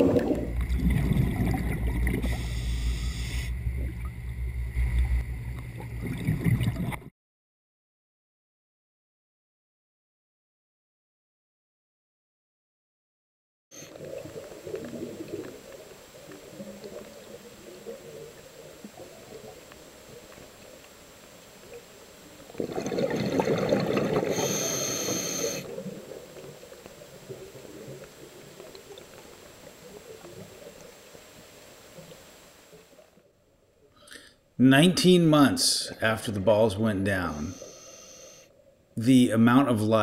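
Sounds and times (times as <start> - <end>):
scuba exhale bubbles: 0.0 - 4.1, 5.8 - 7.1, 22.4 - 29.0
muffled underwater rush: 0.0 - 7.1, 13.8 - 33.3.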